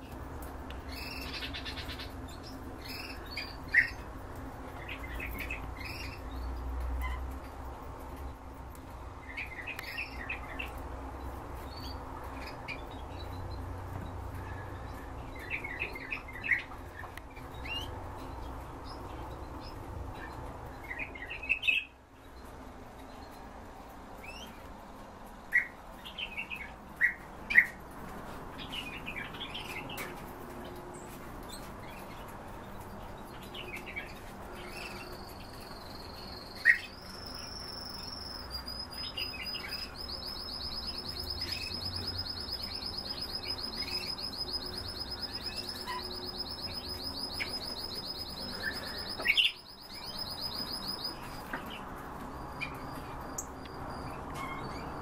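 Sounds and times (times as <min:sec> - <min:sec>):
songbirds chirping: 0:00.0 - 0:55.0
bird high rapid trill: 0:34.7 - 0:51.5.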